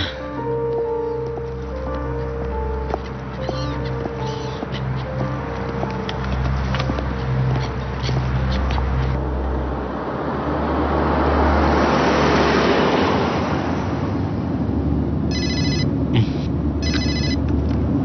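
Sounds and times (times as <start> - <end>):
car driving past: 1.8 - 14.4
mobile phone ringing: 15.3 - 15.9, 16.8 - 17.4.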